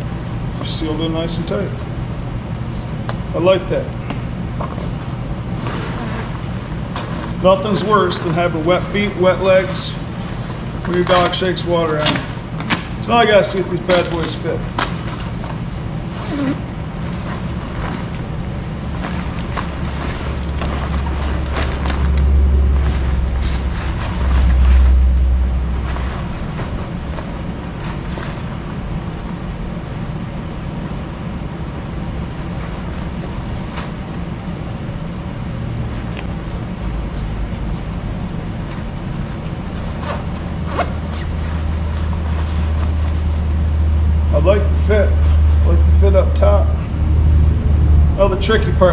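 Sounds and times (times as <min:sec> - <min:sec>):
stiff fabric rustling: 0:04.7 - 0:29.4, 0:31.7 - 0:45.8
low rumble: 0:17.1 - 0:29.9, 0:41.1 - 0:48.9.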